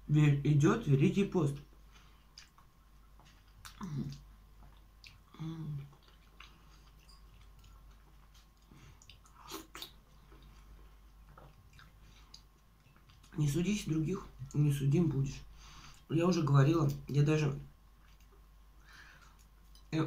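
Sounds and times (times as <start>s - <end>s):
person chewing a tomato: 1.6s - 13.4s, 17.9s - 19.9s.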